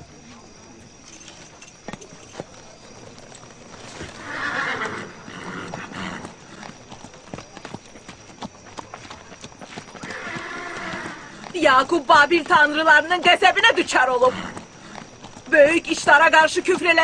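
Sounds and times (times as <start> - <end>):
horse hooves clip-clopping: 0.0 - 17.0
horse whinnying: 3.8 - 6.8, 10.0 - 11.8, 12.9 - 15.1.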